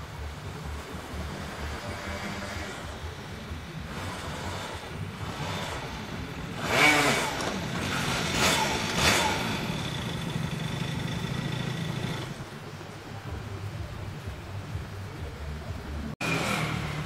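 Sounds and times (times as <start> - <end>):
scooter engine: 0.0 - 12.7, 16.2 - 17.0
scooter engine blips: 3.8 - 12.4.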